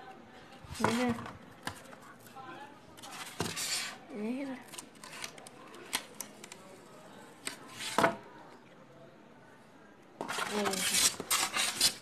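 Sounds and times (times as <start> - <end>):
foam tray scraping on tiles: 3.0 - 4.0, 10.2 - 12.0.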